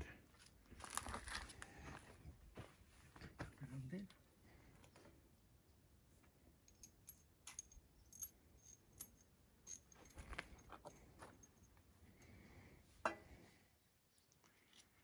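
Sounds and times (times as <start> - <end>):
small metal parts clinking: 6.6 - 11.8.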